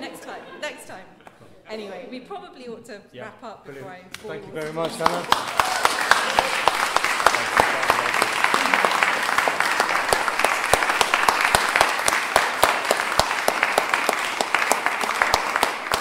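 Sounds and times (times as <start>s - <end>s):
audience applauding: 4.6s - 16.0s.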